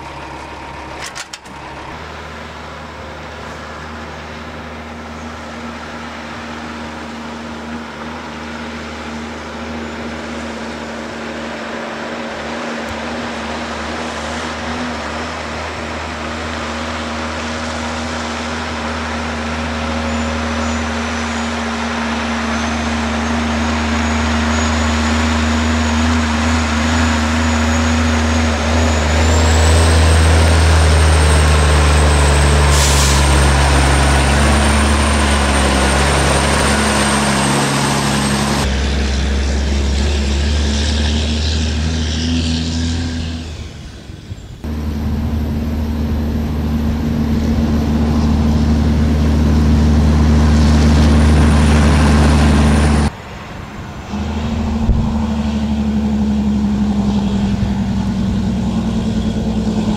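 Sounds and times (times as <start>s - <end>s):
high whine: 0.0s - 59.9s
truck diesel engine pulling hard: 0.0s - 59.9s
air hiss: 32.7s - 33.4s.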